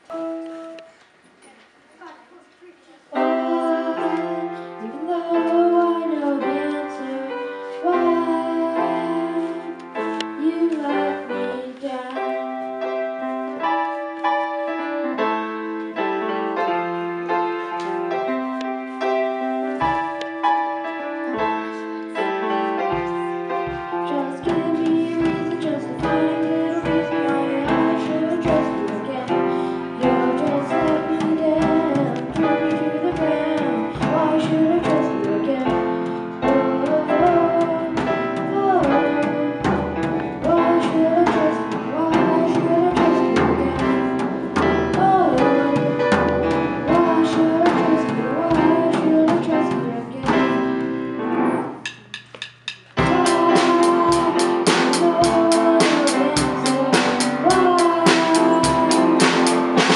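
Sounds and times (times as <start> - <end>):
grand piano playing: 0.0 - 1.0, 3.1 - 51.9, 53.0 - 59.9
boy singing: 2.0 - 12.7, 20.9 - 50.8, 53.0 - 59.9
drum kit beat: 22.8 - 51.0, 51.8 - 59.9.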